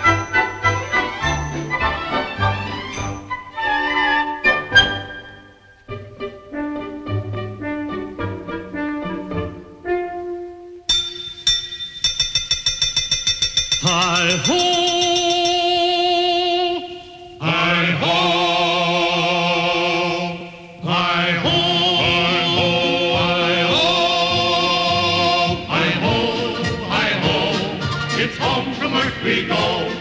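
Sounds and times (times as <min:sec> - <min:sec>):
tinkling repeated notes: 0:00.0 - 0:03.5, 0:10.9 - 0:16.0
voices holding long notes: 0:13.9 - 0:30.0.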